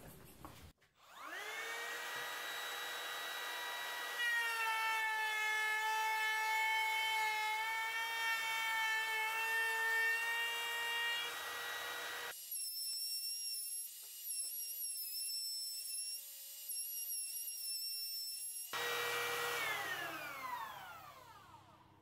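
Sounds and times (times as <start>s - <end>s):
router bit cutting wood: 1.0s - 12.4s, 18.7s - 21.9s
trim router whine: 1.0s - 17.4s, 18.6s - 22.0s.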